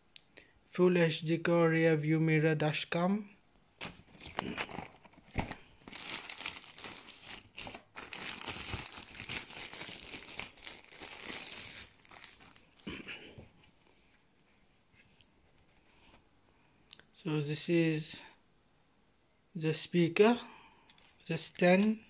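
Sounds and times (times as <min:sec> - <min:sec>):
plastic wrap crinkling: 0:03.8 - 0:12.9.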